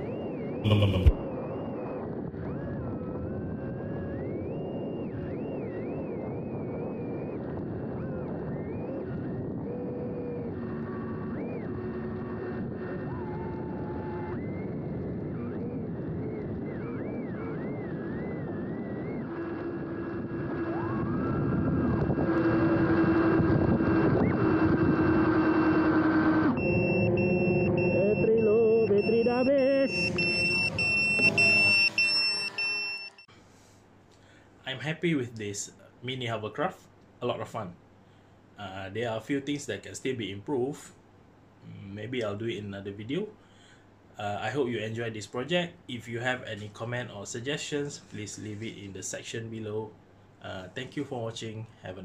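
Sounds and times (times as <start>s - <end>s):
high electronic beeps: 0.0s - 1.2s, 26.6s - 33.3s
rc hovercraft motors whining: 29.9s - 33.3s.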